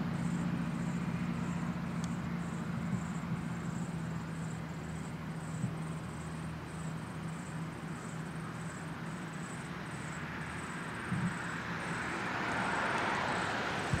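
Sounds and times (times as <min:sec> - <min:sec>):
road traffic rushing: 0:00.0 - 0:14.0
vehicle passing: 0:09.6 - 0:14.0.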